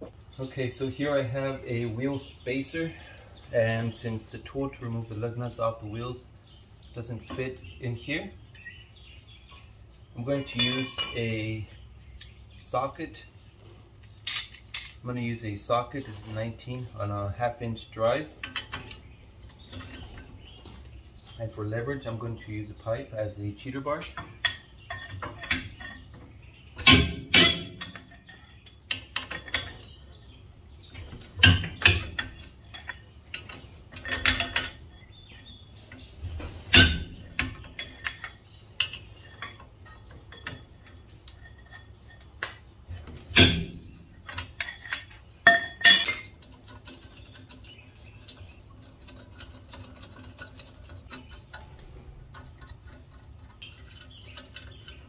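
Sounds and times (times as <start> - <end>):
metal clinks and clanks: 10.3 - 11.6, 14.2 - 15.0, 26.8 - 30.4, 31.2 - 36.0, 36.7 - 55.0
sharp metal knocks: 10.5 - 11.3, 26.8 - 28.2, 36.7 - 38.3, 42.4 - 46.4.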